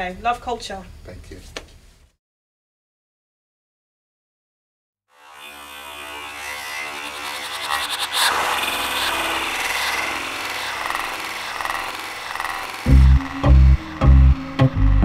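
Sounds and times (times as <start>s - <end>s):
rumbling hissing swell: 5.2s - 14.6s.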